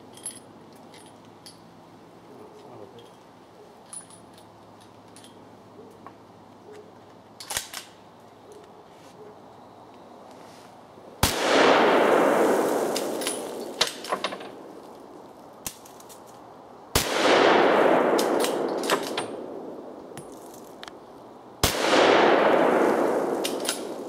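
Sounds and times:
rifle shots echoing: 11.2s - 14.8s, 16.9s - 20.4s, 21.6s - 24.0s.

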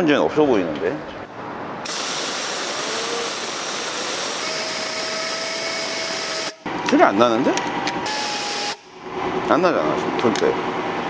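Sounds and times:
compressed air hissing: 1.8s - 6.6s
turbo spinning whine: 1.9s - 6.8s, 8.0s - 11.0s.

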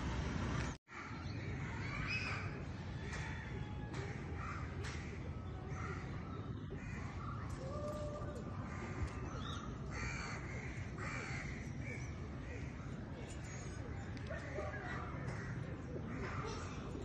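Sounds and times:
crows cawing: 3.0s - 6.2s, 8.7s - 11.8s.

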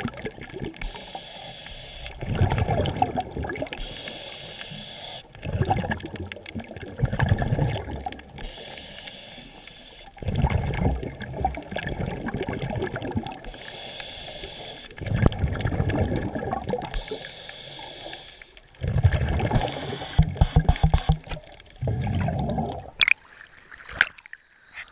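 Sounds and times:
exhaled bubbles underwater: 0.0s - 24.7s
regulator inhalation hiss: 0.8s - 2.2s, 3.8s - 5.3s, 8.4s - 10.1s, 13.5s - 15.0s, 16.9s - 18.6s, 19.6s - 21.3s.

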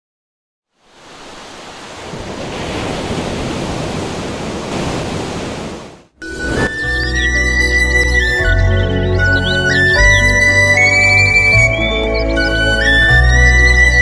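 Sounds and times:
ocean waves washing: 0.8s - 7.0s.

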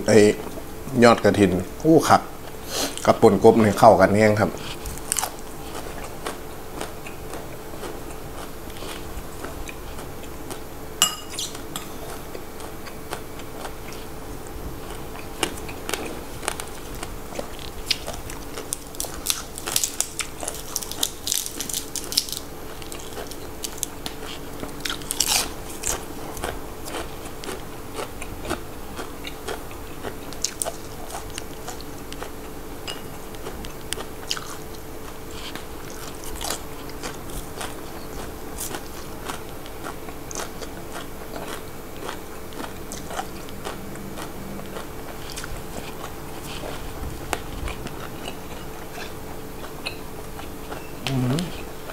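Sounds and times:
wet chewing: 11.3s - 51.9s
crisp vegetable crunches: 14.9s - 32.3s.

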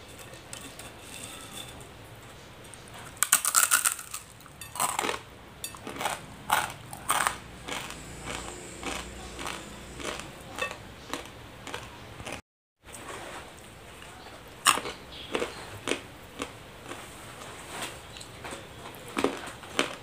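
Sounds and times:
chewing crunches: 3.1s - 12.4s, 14.5s - 20.0s.

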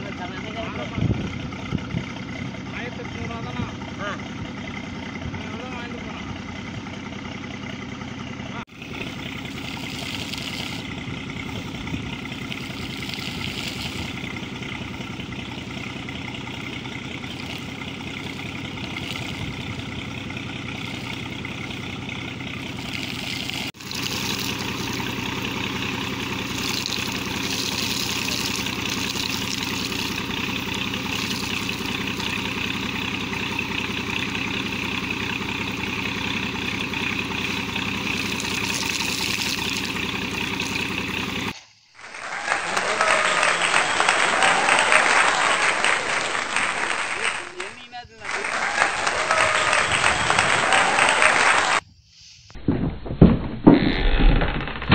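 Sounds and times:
air compressor engine running: 0.0s - 43.2s
hissing splashing air and water: 8.7s - 14.6s, 17.1s - 19.6s, 20.7s - 21.7s, 22.6s - 35.2s, 35.8s - 47.3s, 50.5s - 52.6s.

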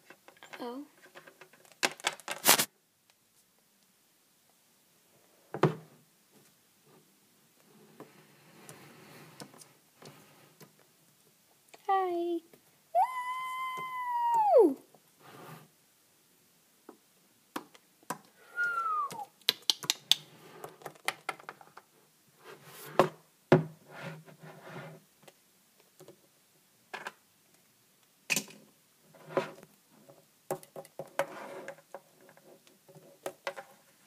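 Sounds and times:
rustling: 0.0s - 3.9s
falling squeak-like tone: 13.0s - 14.8s, 18.5s - 19.3s.

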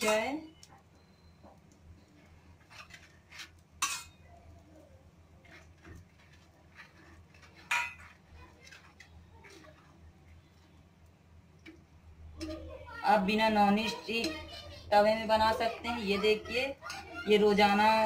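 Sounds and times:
metal spoon scraping griddle: 2.0s - 4.3s, 5.3s - 10.8s, 13.4s - 18.0s.

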